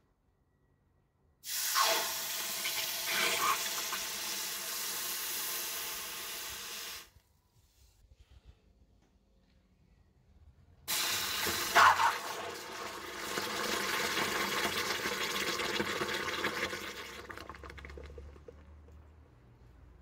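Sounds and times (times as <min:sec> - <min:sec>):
hot metal hissing in water: 0:01.4 - 0:07.1, 0:10.9 - 0:12.2
boiling sizzle: 0:01.5 - 0:07.0, 0:10.9 - 0:18.6.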